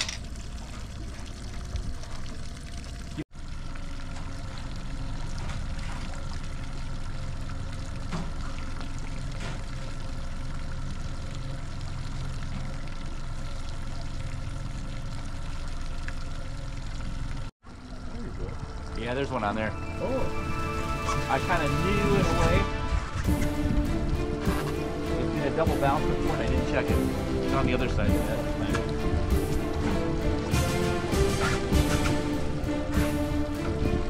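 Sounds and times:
outboard motor humming: 0:00.0 - 0:34.0
water churning and splashing: 0:00.0 - 0:34.0.

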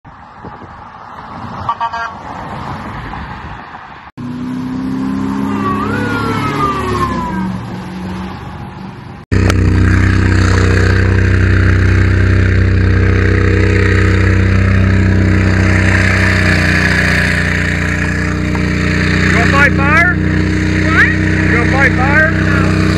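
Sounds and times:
street traffic: 0:00.0 - 0:22.9
vehicle engine rising and falling: 0:04.2 - 0:22.9
truck engine from inside cab: 0:09.2 - 0:22.9.

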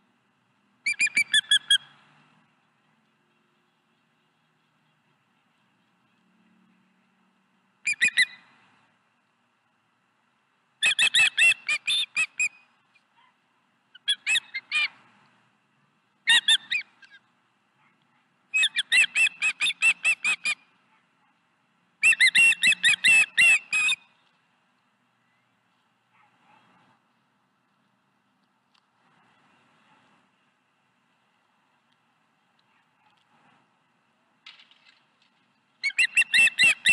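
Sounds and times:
bird rapid high chirps: 0:00.8 - 0:01.9, 0:07.8 - 0:08.5, 0:10.8 - 0:12.8, 0:13.9 - 0:15.0, 0:16.3 - 0:17.2, 0:18.5 - 0:20.7, 0:22.0 - 0:24.2, 0:35.8 - 0:36.9.

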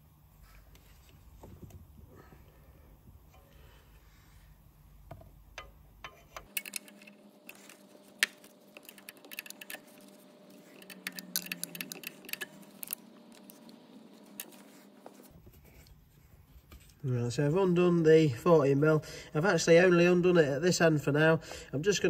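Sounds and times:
spanner clicking on metal nut: 0:05.5 - 0:13.0.

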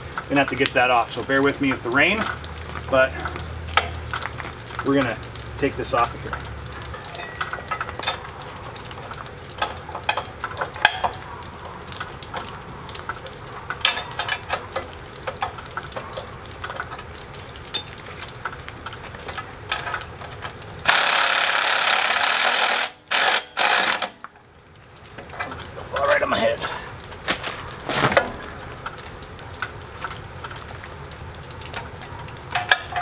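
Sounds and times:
cordless impact driver: 0:20.9 - 0:24.1.

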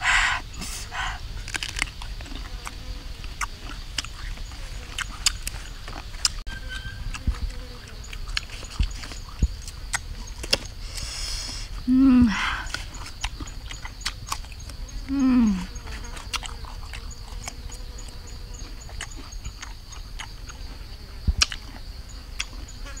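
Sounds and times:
crunchy fruit bites and chewing: 0:01.2 - 0:11.6, 0:12.6 - 0:23.0
person humming: 0:11.8 - 0:12.7, 0:15.1 - 0:15.8.

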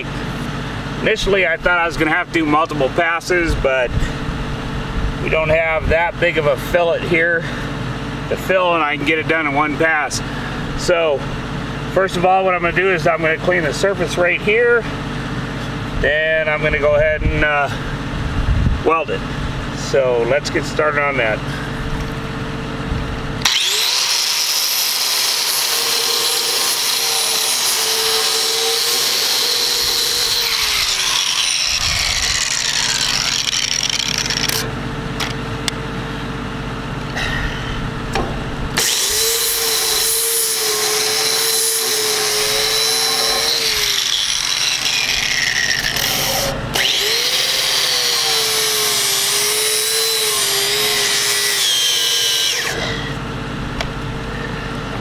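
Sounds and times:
angle grinder on steel: 0:23.4 - 0:34.7, 0:38.8 - 0:53.2.

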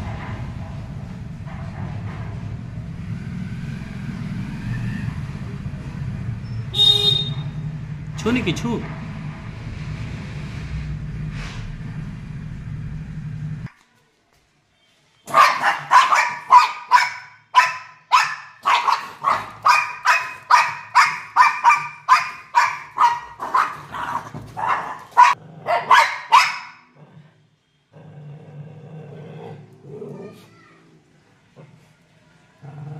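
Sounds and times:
steady low hum: 0:08.8 - 0:13.7
dog barking rapidly: 0:15.3 - 0:26.9.

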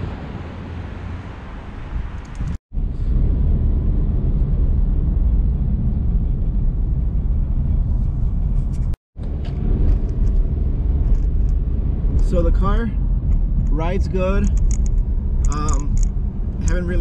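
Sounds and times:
road and engine rumble in car: 0:00.0 - 0:17.0.

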